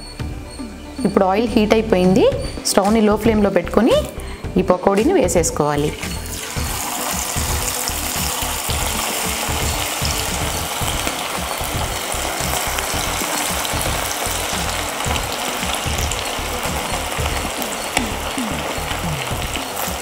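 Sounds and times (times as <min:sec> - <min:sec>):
chicken sizzling in hot oil: 0:05.8 - 0:20.0
sharp oil crackles: 0:06.3 - 0:20.0.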